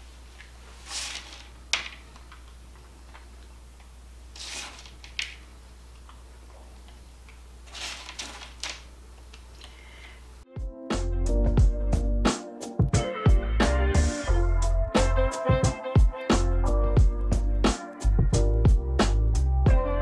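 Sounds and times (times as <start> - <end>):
hands rustling nuts: 0.4 - 3.3, 7.7 - 8.9.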